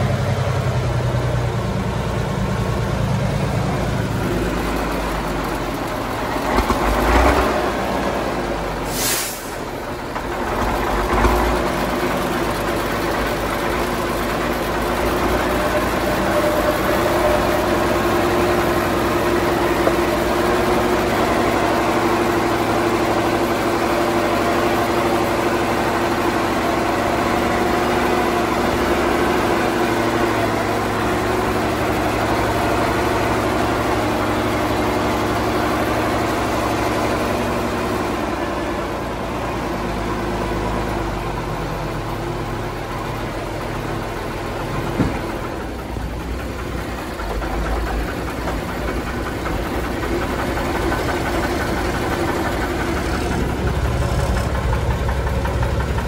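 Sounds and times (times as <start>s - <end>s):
truck diesel engine running: 0.0s - 56.0s
thump: 44.9s - 45.4s.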